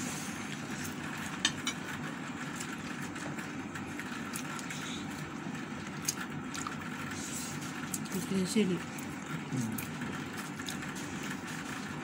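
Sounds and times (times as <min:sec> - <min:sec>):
person chewing: 0:04.2 - 0:08.1, 0:09.0 - 0:12.0.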